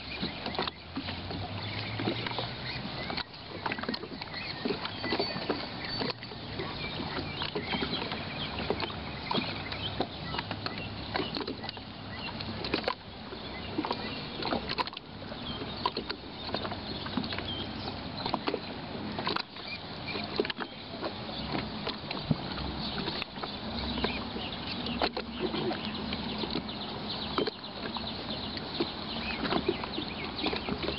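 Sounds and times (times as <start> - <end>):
wash of water noise: 0.0 - 30.9
waves lapping against shore: 0.0 - 30.9.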